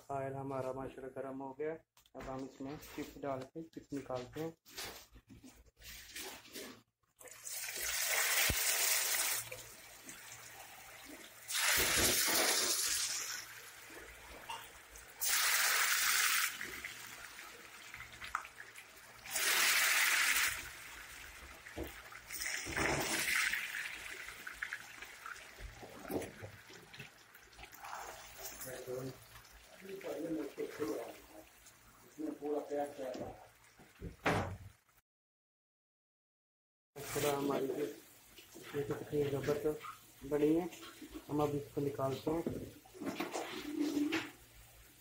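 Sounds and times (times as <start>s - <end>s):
chips sizzling in hot oil: 7.9s - 9.5s, 11.5s - 13.9s, 15.1s - 25.8s.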